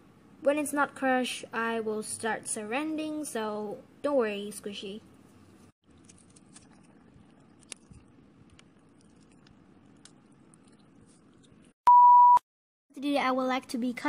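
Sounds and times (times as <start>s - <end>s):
loud steady test tone beep: 11.9s - 12.4s.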